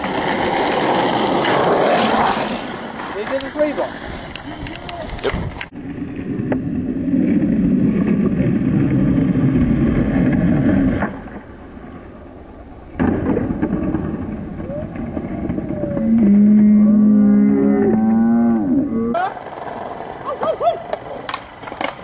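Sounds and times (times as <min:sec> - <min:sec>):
skateboard wheels rolling on concrete: 0:00.0 - 0:22.0
skateboard landing clack: 0:12.9 - 0:16.3, 0:20.8 - 0:22.0.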